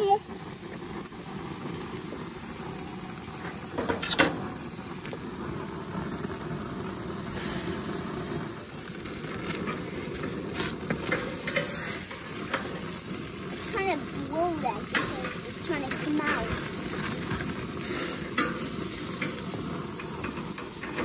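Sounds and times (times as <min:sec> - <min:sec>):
meat sizzling on grill: 0:00.0 - 0:21.0
metal tongs clinking on grate: 0:11.1 - 0:13.1, 0:14.8 - 0:21.0.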